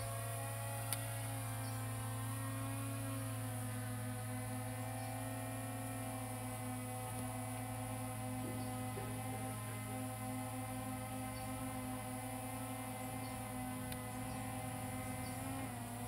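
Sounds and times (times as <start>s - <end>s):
drone propellers humming: 0.0s - 16.0s.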